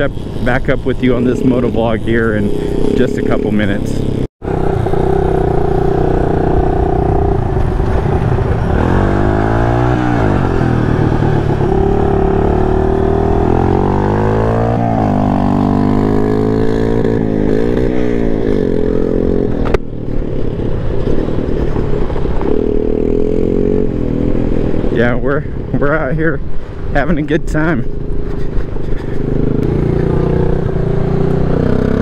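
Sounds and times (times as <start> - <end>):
scooter engine revving: 0.0 - 19.7.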